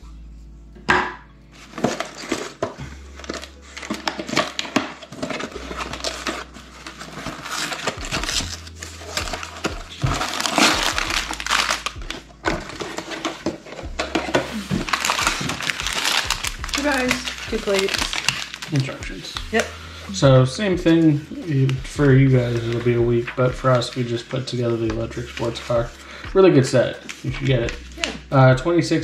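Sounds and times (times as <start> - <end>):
cardboard box opened: 1.6 - 19.8
plastic bags crinkling: 1.6 - 28.5.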